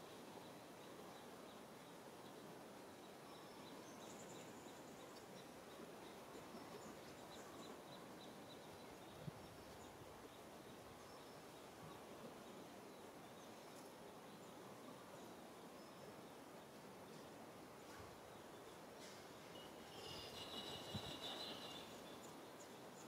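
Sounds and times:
faint high chirps: 19.0s - 22.4s.

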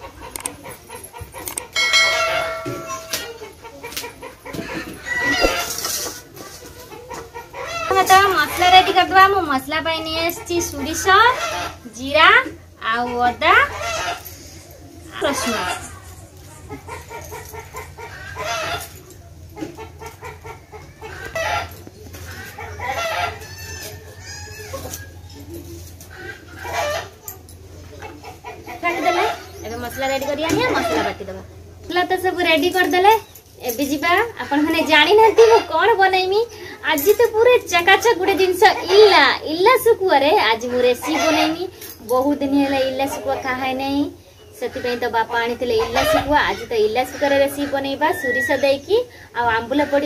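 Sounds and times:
chickens clucking: 0.0s - 50.0s
ringing metallic clang: 1.8s - 3.4s
rooster crowing: 4.7s - 5.8s, 22.8s - 24.9s.

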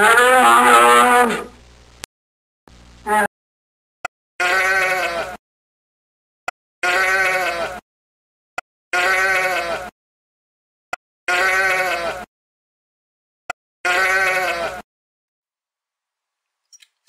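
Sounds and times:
sheep bleating: 0.0s - 1.5s, 4.4s - 5.4s, 6.8s - 7.8s, 8.9s - 9.9s, 11.3s - 12.3s, 13.8s - 14.8s.

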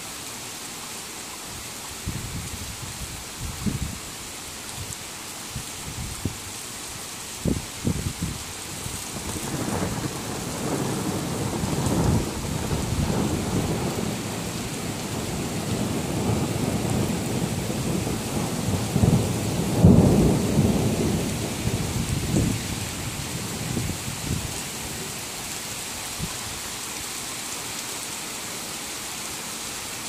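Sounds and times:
torrential rain hissing: 0.0s - 30.0s
thunder rumbling: 9.0s - 24.7s.

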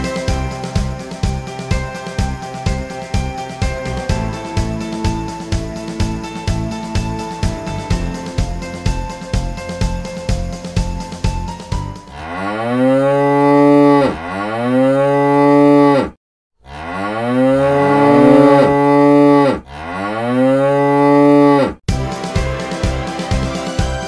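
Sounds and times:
cow mooing: 12.1s - 21.7s.

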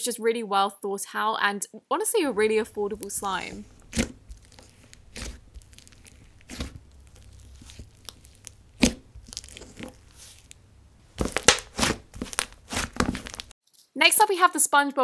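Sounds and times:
slime popping and crackling: 2.5s - 13.5s.

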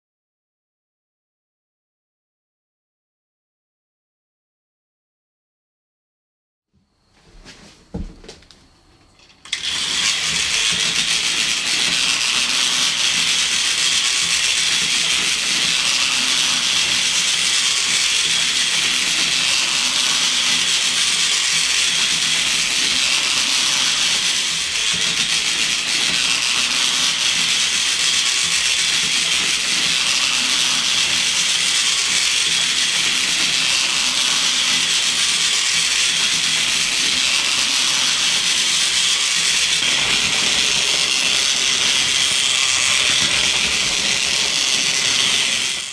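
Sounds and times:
toy train motor whirring: 9.3s - 45.9s
wheels rattling on plastic track: 9.4s - 45.9s.

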